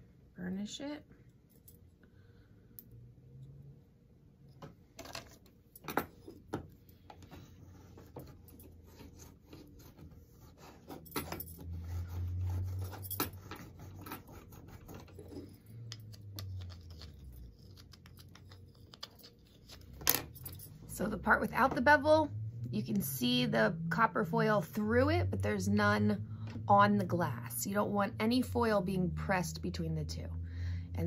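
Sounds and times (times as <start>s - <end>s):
tool rubbing and scraping foil: 7.6s - 15.7s, 16.4s - 20.0s.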